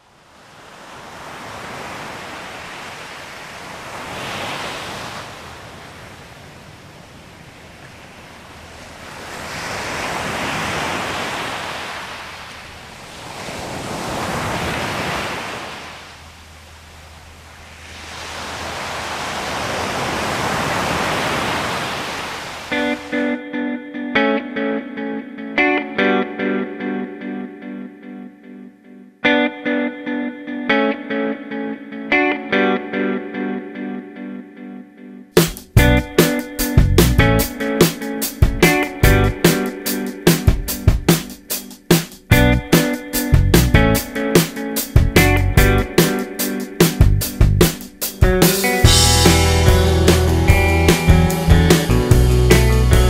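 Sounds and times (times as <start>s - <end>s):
surf breaking on beach: 0.3s - 23.3s, 35.4s - 47.0s, 47.6s - 53.0s
plucked guitar music: 22.7s - 41.6s, 42.3s - 53.0s.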